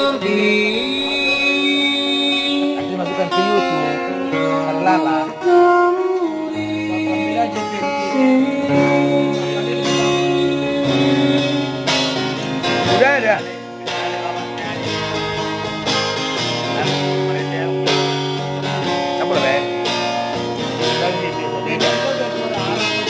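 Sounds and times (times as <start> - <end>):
man singing: 0.0 - 15.1, 20.9 - 23.0
guitar playing: 0.0 - 23.0.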